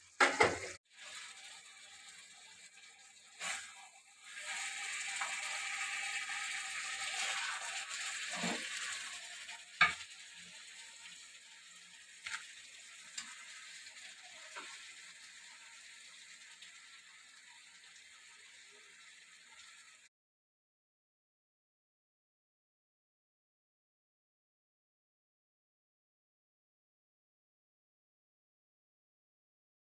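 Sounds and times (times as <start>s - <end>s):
curry sizzling in a pan: 0.0s - 20.1s.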